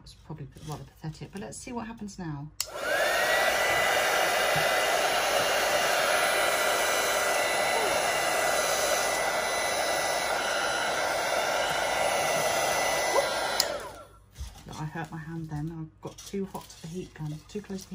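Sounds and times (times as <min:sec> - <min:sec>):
heat gun blower hiss: 0:02.7 - 0:14.1
high fan motor whine: 0:02.7 - 0:14.1.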